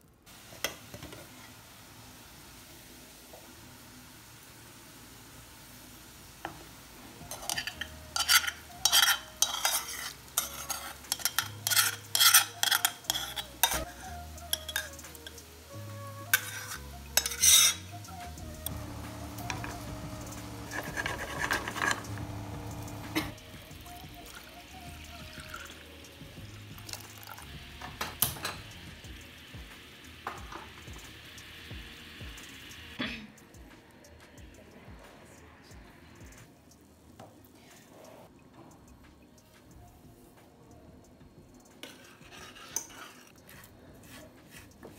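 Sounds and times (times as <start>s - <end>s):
syrup boiling in a pan: 0.0s - 33.0s, 41.6s - 44.9s
metal cookware clanking: 7.2s - 15.4s, 16.3s - 18.0s, 20.6s - 23.4s, 27.2s - 28.8s
spoon scraping metal pot: 7.2s - 15.4s, 16.3s - 18.0s, 20.6s - 23.4s, 41.8s - 44.9s.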